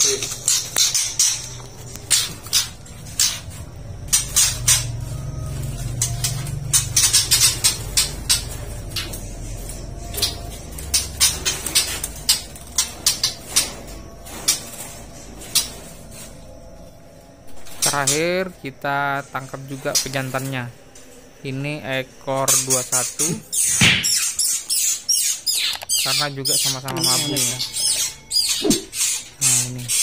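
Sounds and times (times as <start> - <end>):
knocks and rattles from bird cage: 0.0 - 16.3.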